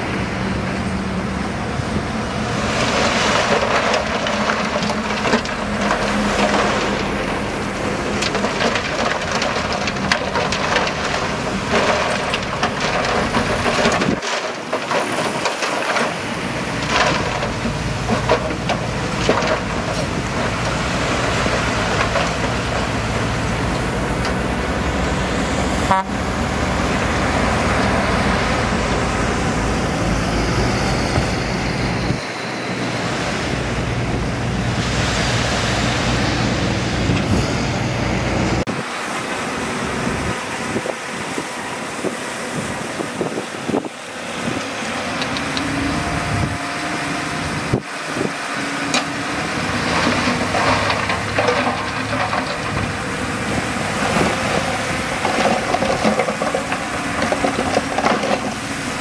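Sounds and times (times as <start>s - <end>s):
heavy diesel machinery running: 0.0s - 59.0s
rock and steel clanking: 2.6s - 25.6s, 48.9s - 59.0s.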